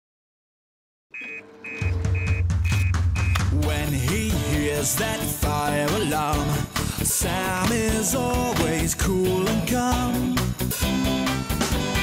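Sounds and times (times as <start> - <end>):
short high electronic beeps: 1.2 - 3.4
bass-heavy theme music: 1.8 - 12.0.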